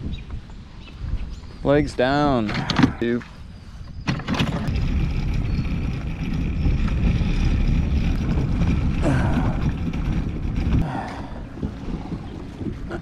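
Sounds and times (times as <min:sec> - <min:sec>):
wind on microphone: 0:00.0 - 0:13.0
wheels rolling over concrete: 0:04.0 - 0:13.0.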